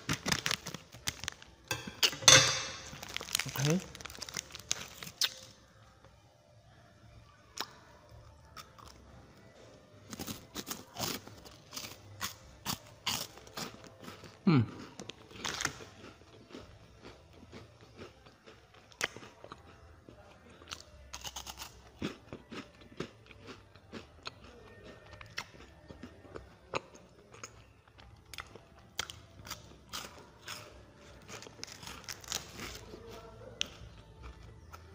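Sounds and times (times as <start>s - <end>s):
crunchy chewing: 2.8s - 5.5s, 10.1s - 34.9s.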